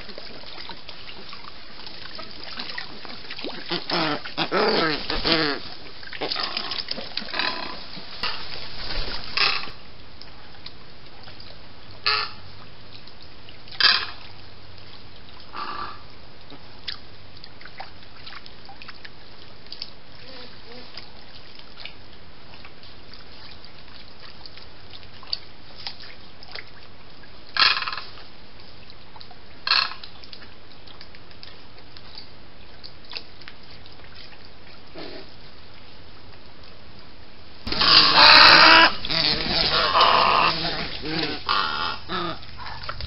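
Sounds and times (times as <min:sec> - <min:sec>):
ibises calling: 0:37.7 - 0:43.0.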